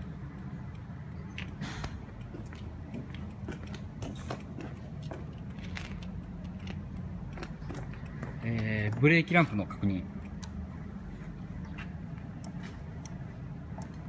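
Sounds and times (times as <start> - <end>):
light clicks: 11.6 - 14.0.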